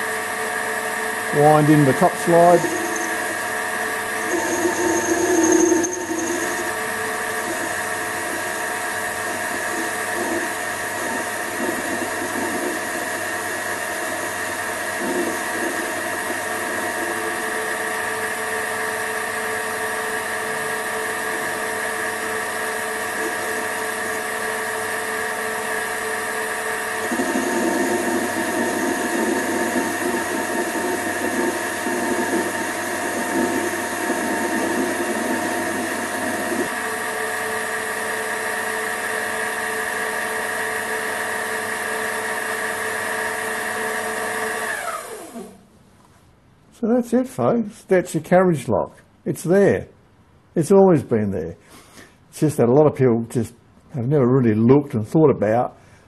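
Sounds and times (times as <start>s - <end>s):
lathe motor and gear whine: 0.0s - 45.6s
rough cutting noise: 1.4s - 8.6s.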